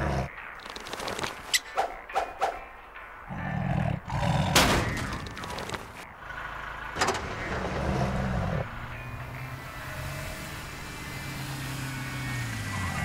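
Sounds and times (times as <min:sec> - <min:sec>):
car engine running: 0:04.6 - 0:13.0.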